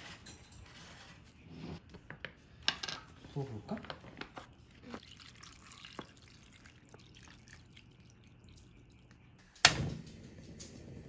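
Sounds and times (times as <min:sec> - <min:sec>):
light clicks and drips: 0:03.8 - 0:09.7
broth pouring into a pan: 0:04.9 - 0:08.6.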